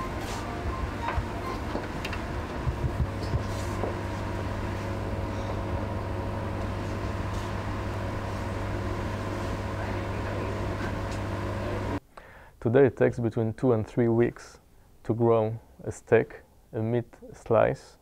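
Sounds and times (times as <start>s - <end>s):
laboratory equipment humming: 0.0s - 12.3s.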